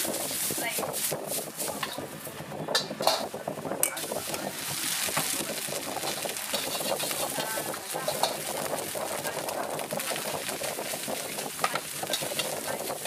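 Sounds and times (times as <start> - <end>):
egg sizzling in hot oil: 0.0 - 2.3, 2.9 - 13.0
metal ladle scraping a wok: 2.8 - 5.4, 6.0 - 9.0, 9.7 - 13.0.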